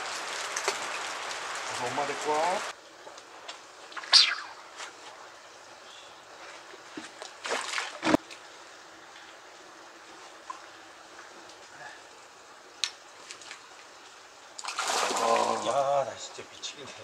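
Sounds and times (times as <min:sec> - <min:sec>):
faint water trickling: 0:00.0 - 0:17.0
fish splashing in water: 0:14.6 - 0:15.6.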